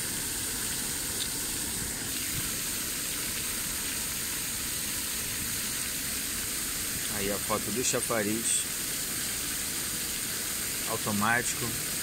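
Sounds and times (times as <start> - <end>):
fountain jets splashing: 0.0 - 12.0.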